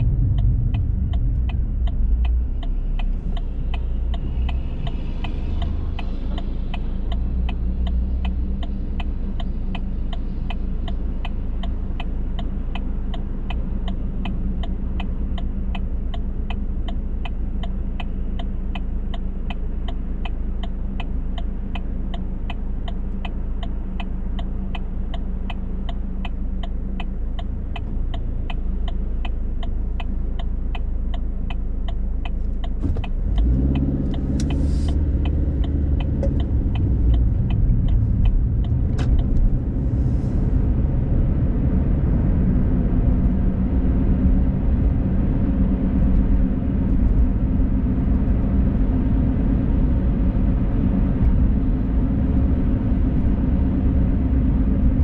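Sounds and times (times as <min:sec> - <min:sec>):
turn signal relay ticking: 0:00.0 - 0:40.0
car engine idling: 0:00.0 - 0:41.1.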